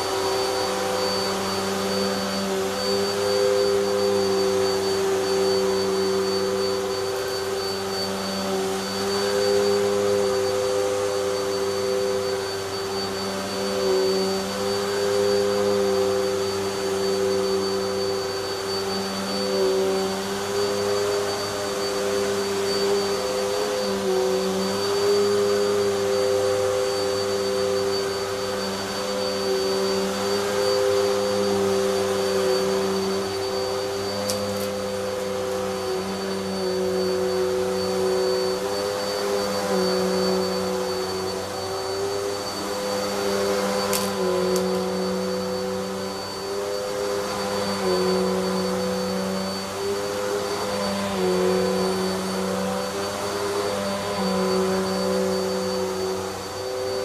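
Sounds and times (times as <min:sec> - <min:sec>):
vacuum cleaner running on carpet: 0:00.0 - 0:57.0.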